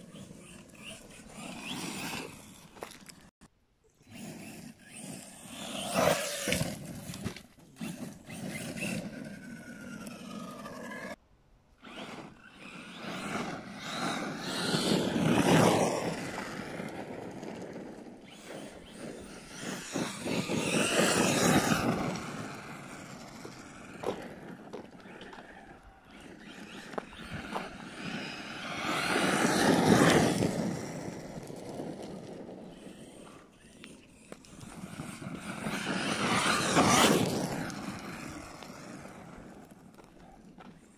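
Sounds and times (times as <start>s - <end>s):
tyres scrabbling on dirt: 0.0s - 3.3s, 4.0s - 11.2s, 11.8s - 40.9s
electric motor whining: 11.8s - 40.7s.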